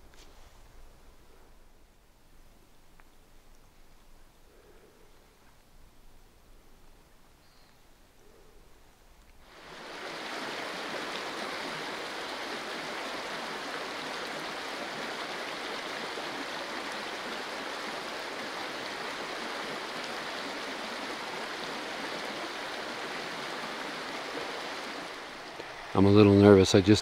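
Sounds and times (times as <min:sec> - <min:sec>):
stream water rushing: 0:09.4 - 0:27.0.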